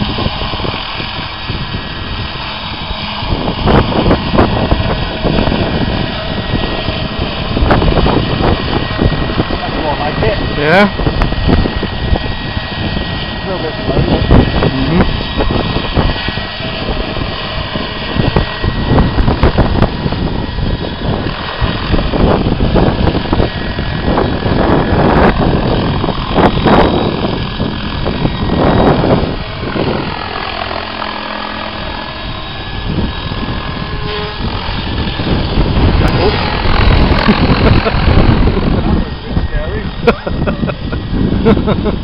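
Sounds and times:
model helicopter engine and rotor: 0.0 - 42.0.

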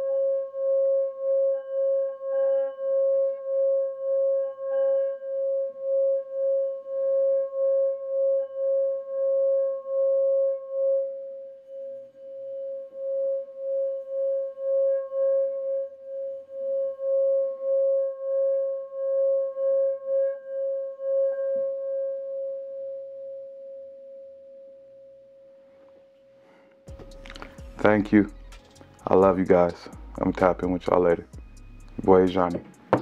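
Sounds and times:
singing bowl ringing tone: 0.0 - 25.6.

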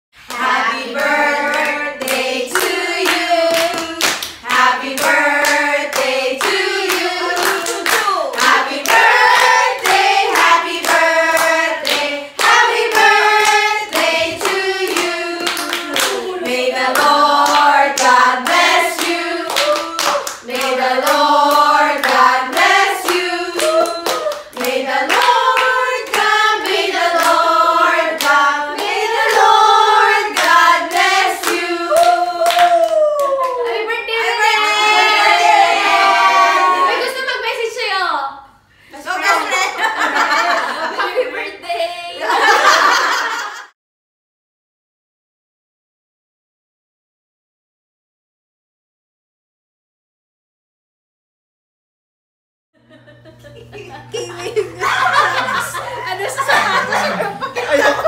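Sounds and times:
hands clapping: 0.2 - 4.4, 5.0 - 16.3, 16.9 - 27.4, 30.4 - 33.6
women singing together: 0.2 - 37.2.

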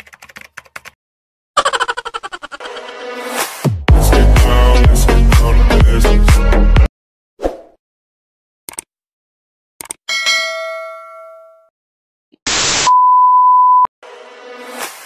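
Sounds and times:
bell-like ding: 10.1 - 11.7
test-tone beep: 12.9 - 13.9.

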